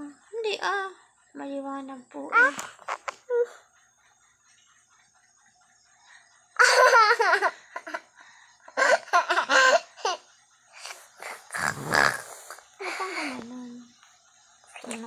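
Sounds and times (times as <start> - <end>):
girl laughing: 6.6 - 8.1, 8.7 - 10.2, 12.8 - 13.4.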